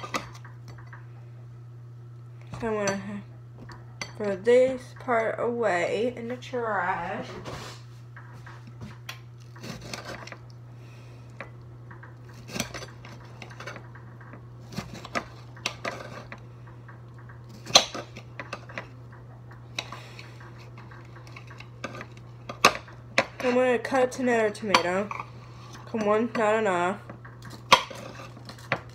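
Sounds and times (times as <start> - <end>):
steady low hum: 0.0 - 28.9.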